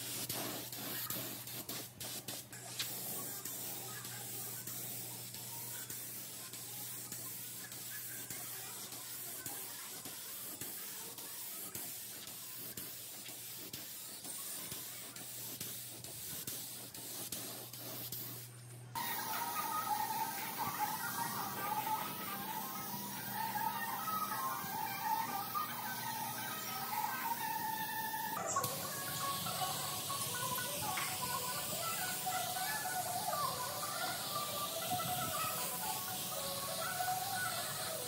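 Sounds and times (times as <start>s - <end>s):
spray hissing: 0.0s - 38.0s
music: 19.0s - 38.0s.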